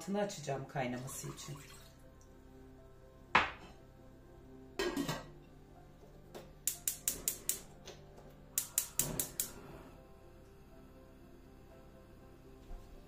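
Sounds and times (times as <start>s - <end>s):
gas igniter clicking: 6.6s - 7.7s, 8.6s - 9.6s.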